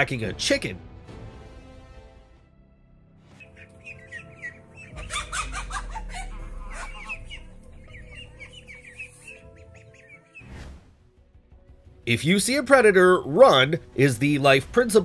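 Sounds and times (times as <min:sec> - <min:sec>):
background music: 0:00.0 - 0:15.0
chicken squawking and clucking: 0:03.4 - 0:10.2.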